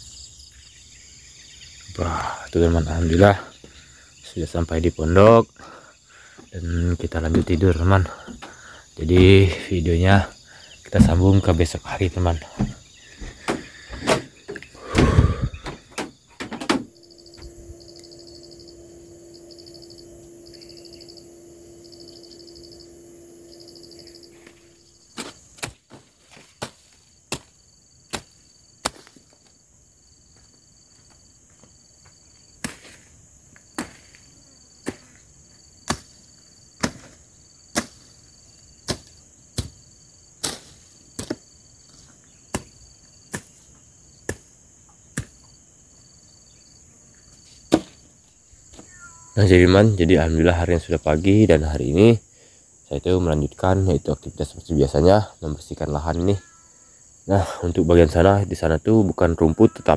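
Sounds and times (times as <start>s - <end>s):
insects chirping and trilling: 0.0s - 59.9s
low hum: 16.8s - 25.1s
machete chopping brush: 24.5s - 29.4s, 32.6s - 33.1s, 33.7s - 34.2s, 34.8s - 35.2s, 35.8s - 36.2s, 36.8s - 38.2s, 38.8s - 39.8s, 40.4s - 41.5s, 42.5s - 43.6s, 44.2s - 45.5s, 47.7s - 48.0s.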